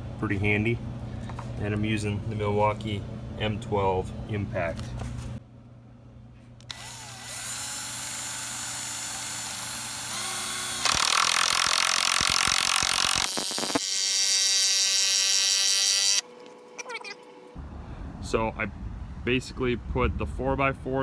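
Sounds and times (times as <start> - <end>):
impact driver driving a screw: 6.7 - 16.2.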